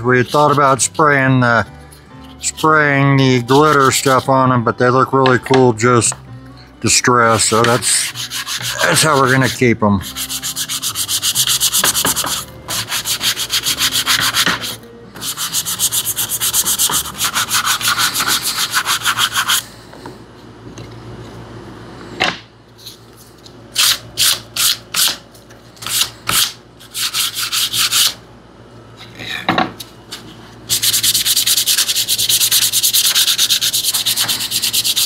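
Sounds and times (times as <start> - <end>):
sanding sponge scrubbing wood: 0.1 - 1.0, 2.3 - 4.3, 7.8 - 19.6, 30.7 - 35.0.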